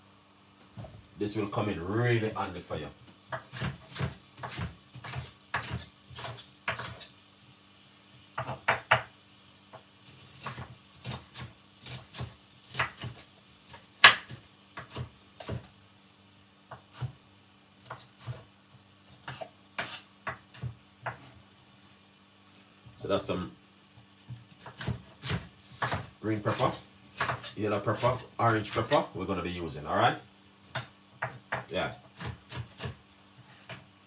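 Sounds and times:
knife chopping on wooden board: 3.3 - 7.0, 8.4 - 9.1, 10.4 - 15.7, 19.2 - 21.3, 24.3 - 29.1, 30.7 - 33.0.

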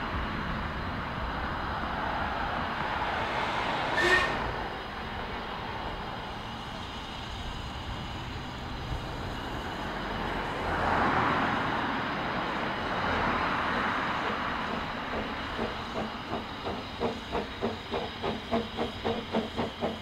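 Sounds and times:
steam locomotive low rumble: 0.0 - 20.0
steam hissing: 12.4 - 20.0
locomotive exhaust beats: 14.2 - 20.0.

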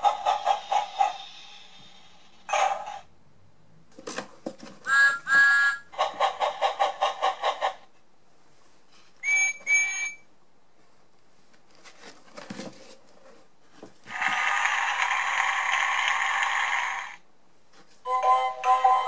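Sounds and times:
hissy sound effect: 0.6 - 2.5
steam whistle toots: 9.2 - 10.2.

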